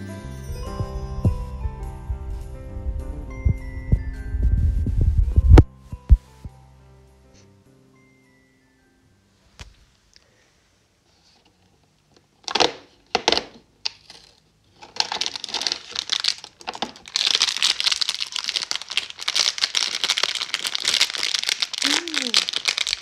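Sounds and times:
plastic bag crinkling: 0:13.8 - 0:23.0
cardboard tearing: 0:15.0 - 0:23.0.

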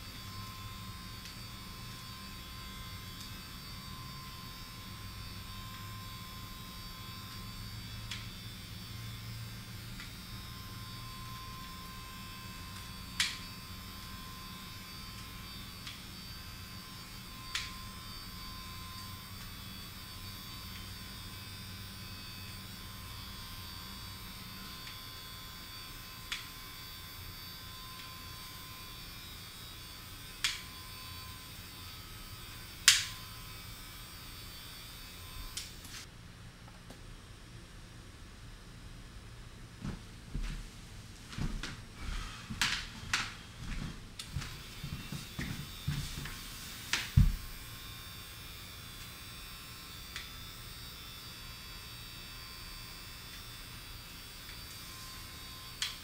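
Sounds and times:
electrical hum: 0:00.0 - 0:56.0.

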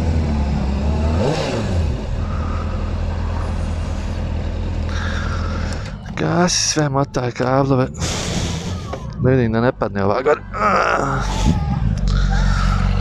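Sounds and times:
motorcycle engine running: 0:00.0 - 0:06.5.

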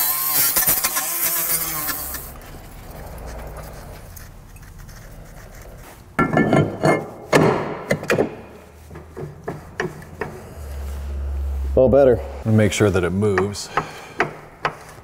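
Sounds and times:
metal clanks and scraping: 0:03.7 - 0:11.1.

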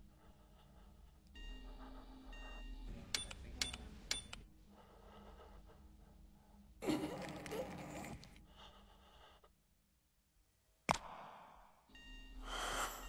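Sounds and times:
faint electronic tones: 0:11.9 - 0:13.0.

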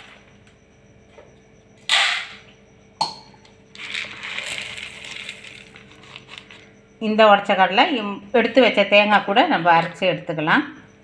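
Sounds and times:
grains poured into a steel jar: 0:03.8 - 0:06.2.

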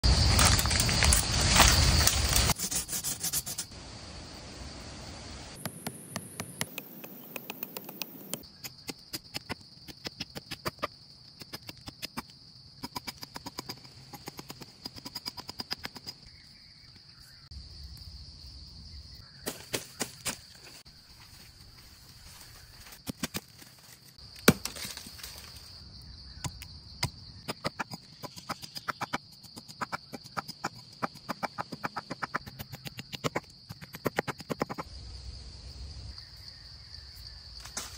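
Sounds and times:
insect drone: 0:00.0 - 0:37.9
blade chopping wood: 0:24.4 - 0:25.1.

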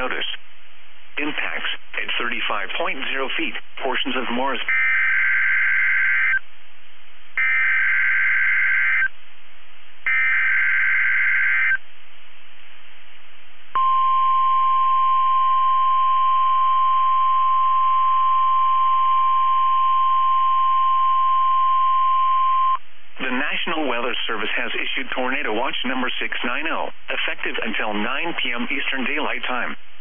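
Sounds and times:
steady warning alarm tone: 0:04.7 - 0:06.4, 0:07.4 - 0:09.1, 0:10.1 - 0:11.8, 0:13.8 - 0:22.8
warbling data tones: 0:04.7 - 0:06.4, 0:07.4 - 0:09.1, 0:10.1 - 0:11.8.

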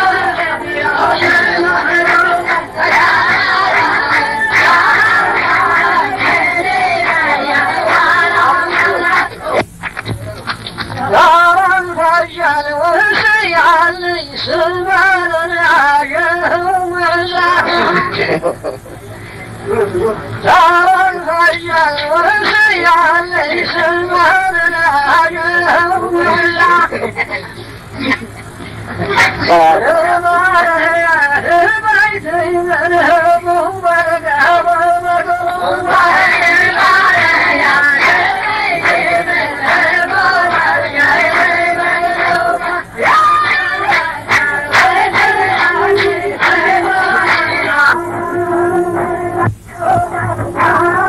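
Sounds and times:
person chanting poetry: 0:00.0 - 0:09.6, 0:19.8 - 0:27.6, 0:29.0 - 0:51.0
man chanting poetry: 0:29.0 - 0:35.9.

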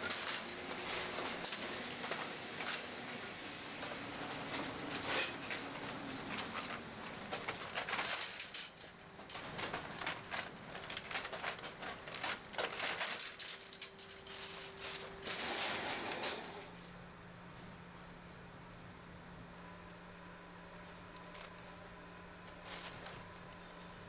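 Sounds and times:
plastic bag rustling: 0:04.4 - 0:16.4, 0:22.5 - 0:23.4.

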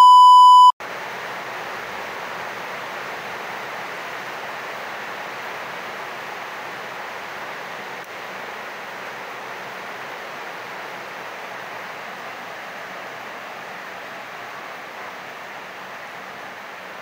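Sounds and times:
test-tone beep: 0:00.0 - 0:00.7.

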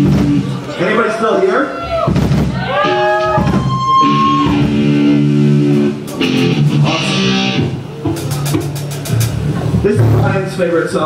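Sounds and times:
electric guitar chords: 0:02.8 - 0:10.2.

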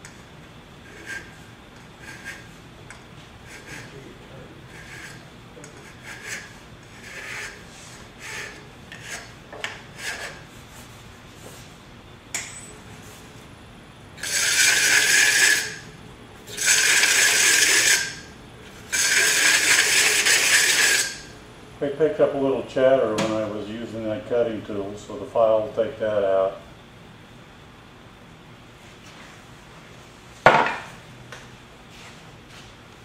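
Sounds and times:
file scraping spinning metal bowl: 0:00.8 - 0:02.6, 0:03.4 - 0:04.0, 0:04.6 - 0:10.6, 0:14.2 - 0:15.9, 0:16.5 - 0:21.3.

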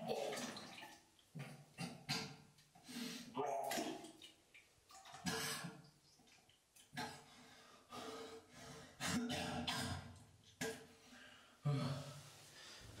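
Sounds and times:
man retching and coughing: 0:01.4 - 0:02.5, 0:09.0 - 0:10.9.

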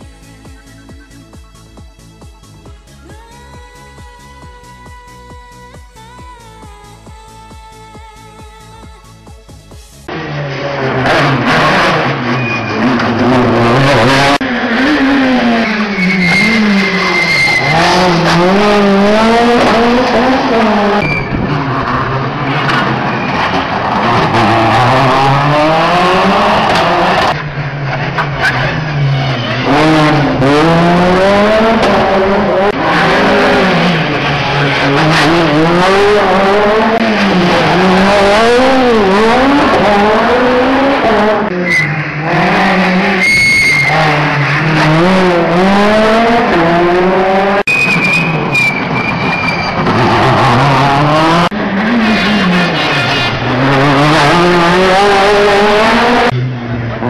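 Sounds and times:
rally car engines revving: 0:00.0 - 0:57.0.

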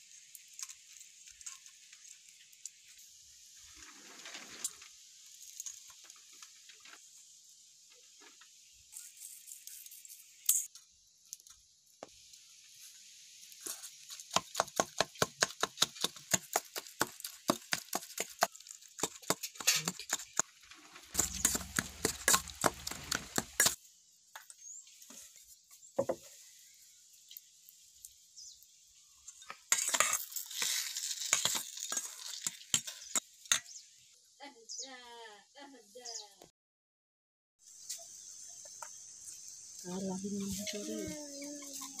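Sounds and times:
scraping and squishing: 0:15.6 - 0:23.8, 0:29.5 - 0:33.6.

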